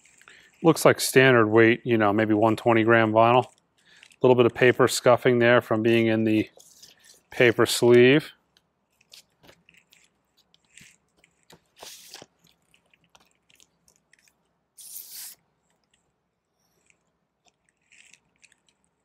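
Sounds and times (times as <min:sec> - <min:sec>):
paper sleeve rustling: 0:09.1 - 0:12.5, 0:14.8 - 0:15.4
paper swish: 0:14.8 - 0:15.4.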